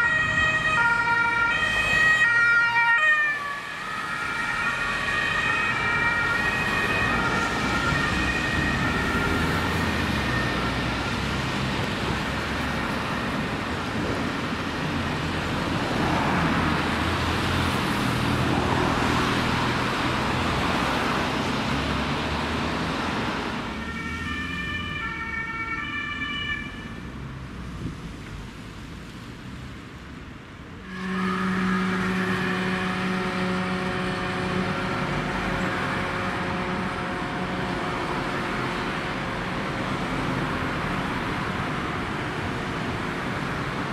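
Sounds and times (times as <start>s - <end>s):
two-tone ambulance siren: 0.0s - 12.7s, 23.7s - 27.2s, 30.8s - 43.9s
road traffic passing close: 0.0s - 43.9s.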